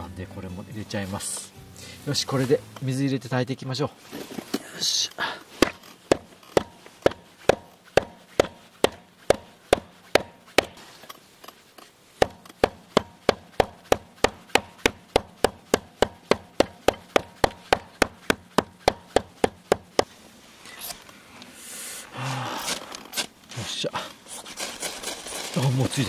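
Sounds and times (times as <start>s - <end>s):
knife chopping kindling: 5.6s - 10.9s, 12.2s - 20.1s.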